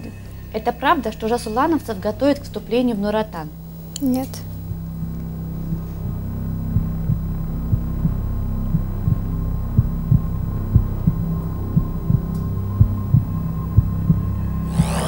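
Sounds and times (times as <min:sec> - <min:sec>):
low steady drone: 0:00.0 - 0:15.0
heartbeat double thump: 0:05.7 - 0:15.0.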